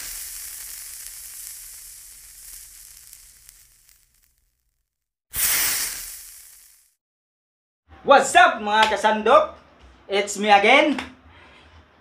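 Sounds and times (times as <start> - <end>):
loud burst of hiss: 0.0 - 4.2, 5.3 - 7.0
hiss sound effect: 0.0 - 4.4, 5.3 - 7.0.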